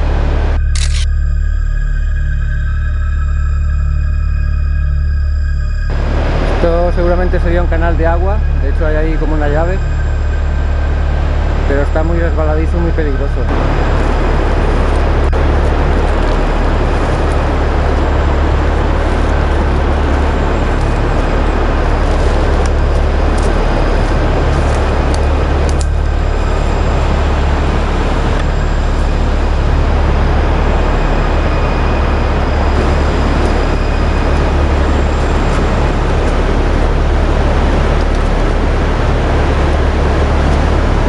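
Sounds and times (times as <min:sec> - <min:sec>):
rushing water: 0:05.9 - 0:41.0.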